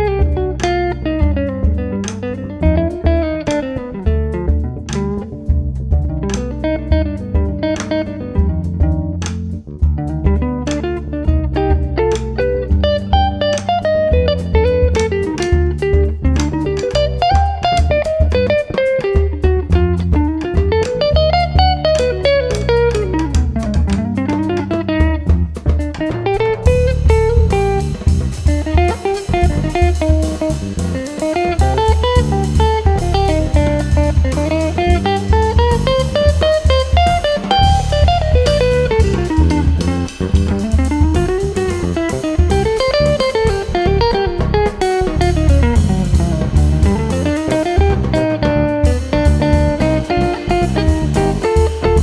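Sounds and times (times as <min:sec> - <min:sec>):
drum kit: 0:00.0 - 0:52.0
electric bass: 0:00.0 - 0:52.0
electric guitar runs: 0:10.6 - 0:52.0.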